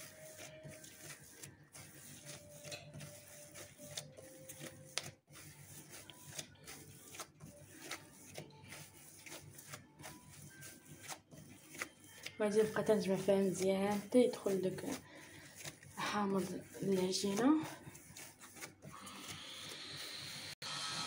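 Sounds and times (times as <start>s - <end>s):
hands kneading dough: 0.0s - 19.4s.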